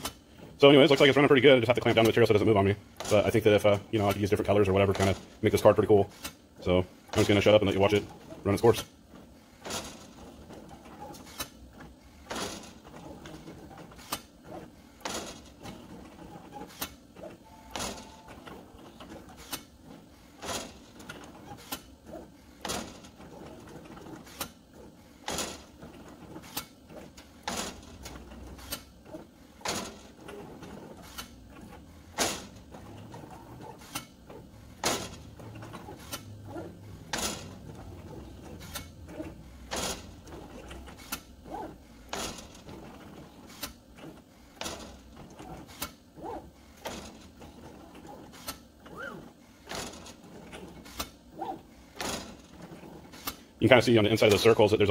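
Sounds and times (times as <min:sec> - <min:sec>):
machine gantry drives moving: 0:12.2 - 0:53.4.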